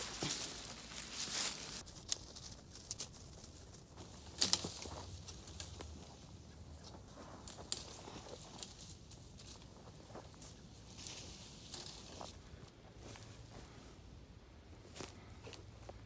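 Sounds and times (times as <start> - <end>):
twigs snapping: 0.0 - 6.0, 7.4 - 9.6
rustling through dry leaves: 0.0 - 16.0.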